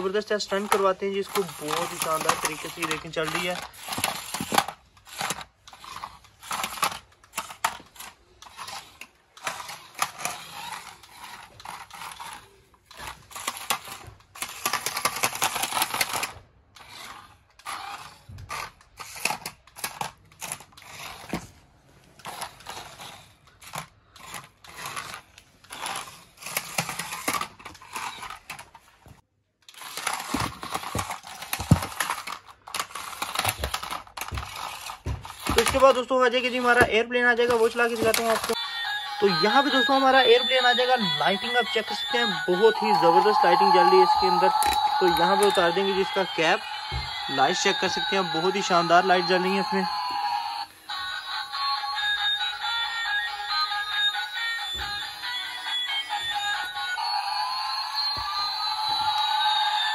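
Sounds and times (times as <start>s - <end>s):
plastic toy car clattering: 0.0s - 38.6s
small electric motors whirring: 0.4s - 21.4s, 22.2s - 28.5s.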